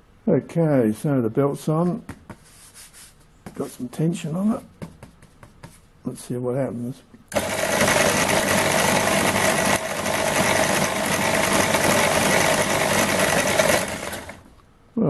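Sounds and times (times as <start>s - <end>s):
belt sander motor hum and whir: 7.3s - 14.4s.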